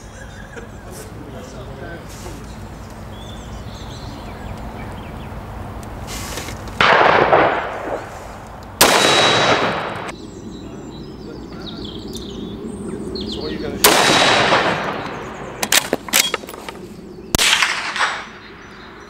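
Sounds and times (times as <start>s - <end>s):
rifle shots ringing out: 6.8s - 8.2s, 8.8s - 10.1s, 13.8s - 16.6s, 17.3s - 18.6s.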